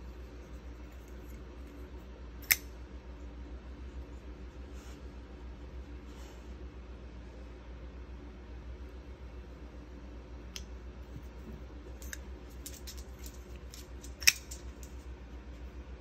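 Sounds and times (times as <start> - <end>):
folding knife metallic clicks: 2.4 - 2.7.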